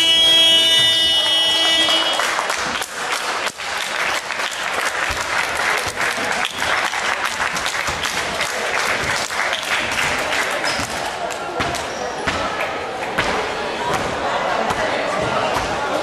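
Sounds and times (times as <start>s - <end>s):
scoreboard buzzer: 0.0s - 2.4s
crowd applauding: 0.6s - 11.5s.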